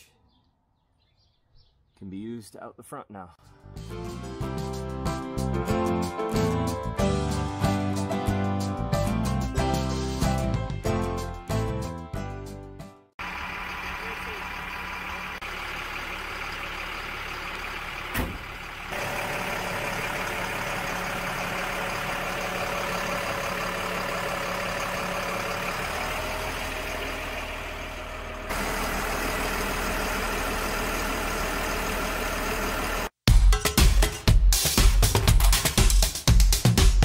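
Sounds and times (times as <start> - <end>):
diesel truck engine idling: 13.2 - 33.2.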